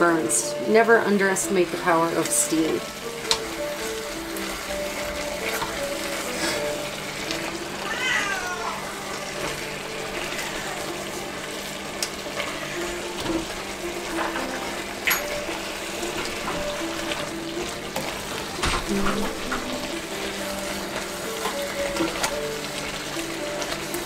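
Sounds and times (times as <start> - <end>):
meat sizzling in a pot: 0.0 - 24.0.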